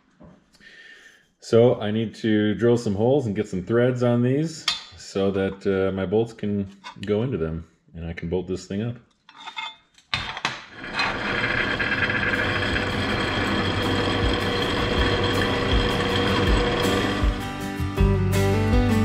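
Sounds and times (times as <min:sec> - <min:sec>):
drill press whirring and grinding: 0:10.8 - 0:17.4.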